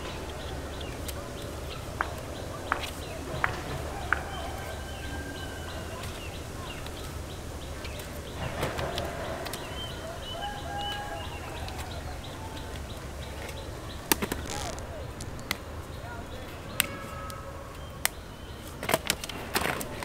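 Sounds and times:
birds chirping: 0.0s - 20.0s
sharp clicks: 12.6s - 15.8s.

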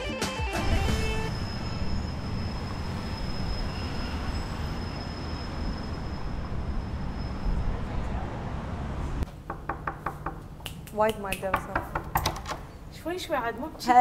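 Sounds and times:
music: 0.0s - 1.3s
street traffic rumble: 0.6s - 14.0s.

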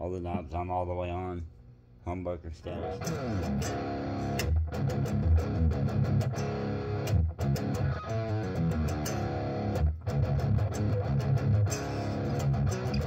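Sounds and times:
electric guitar notes and chords: 2.8s - 13.0s.

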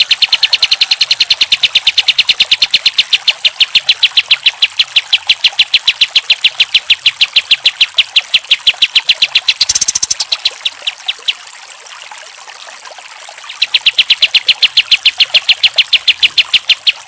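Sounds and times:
bird singing rapid short notes: 0.0s - 11.4s, 13.5s - 17.0s.

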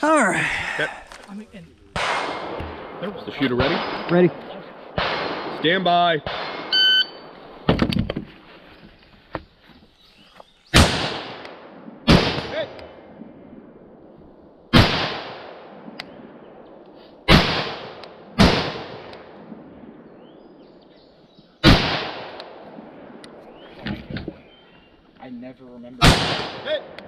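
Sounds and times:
rifle shots echoing: 1.9s - 7.7s, 10.7s - 20.8s, 21.6s - 23.7s, 26.0s - 27.0s.

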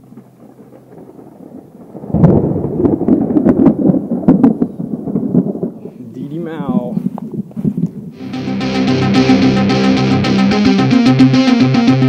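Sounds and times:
thunder cracking and rumbling: 0.0s - 8.2s.

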